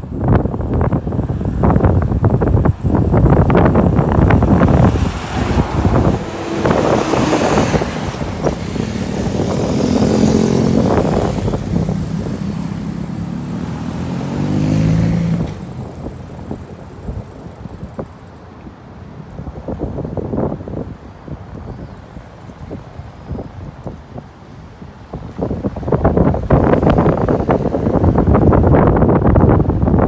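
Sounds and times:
wind buffeting microphone: 0.0 - 30.0
vehicle engine passing: 1.2 - 18.2.

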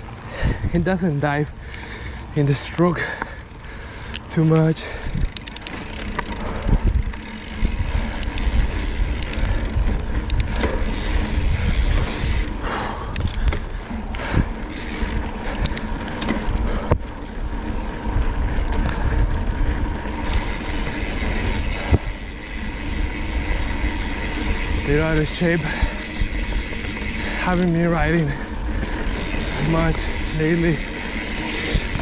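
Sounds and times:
wind rumble on microphone: 0.0 - 1.7, 4.2 - 32.0
bike rattling clicks and knocks: 0.0 - 32.0
bike tyres on loose dirt: 0.0 - 32.0.

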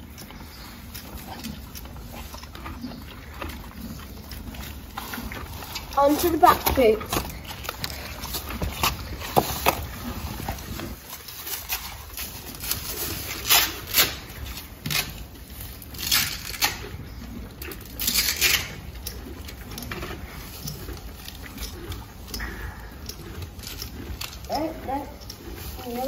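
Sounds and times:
straw rustling underfoot: 0.4 - 16.9, 17.8 - 26.0
velcro straps ripping: 11.4 - 14.3.

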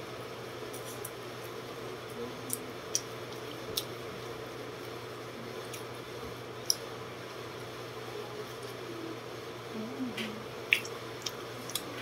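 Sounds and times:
electric fan hum: 0.0 - 12.0
person chewing: 2.5 - 4.0, 10.7 - 12.0.

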